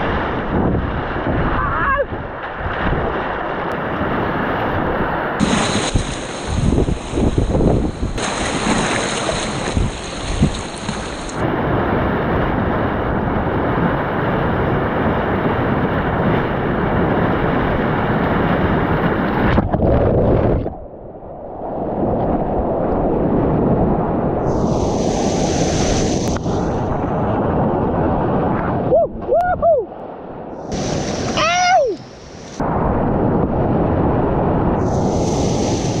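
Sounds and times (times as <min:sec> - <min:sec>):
waves splashing against kayak: 0:00.0 - 0:12.8, 0:24.5 - 0:27.1, 0:30.5 - 0:32.6
wind buffeting microphone: 0:00.0 - 0:36.0
whitewater rapids rushing: 0:05.4 - 0:07.6, 0:08.2 - 0:11.4.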